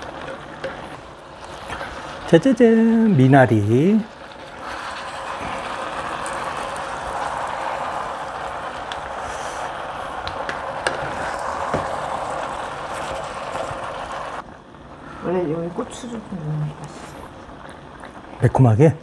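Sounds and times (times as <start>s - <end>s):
sauce bubbling and sizzling: 0.0s - 19.0s.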